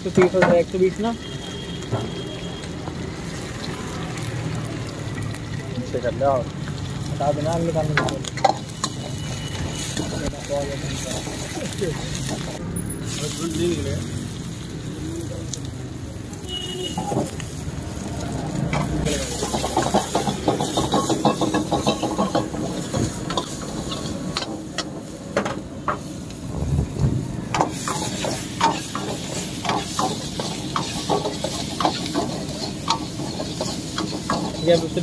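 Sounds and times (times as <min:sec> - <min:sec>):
vegetables sizzling in a wok: 0:00.0 - 0:35.0
ladle scraping and clanking on wok: 0:07.8 - 0:13.3, 0:18.7 - 0:26.3, 0:27.5 - 0:35.0.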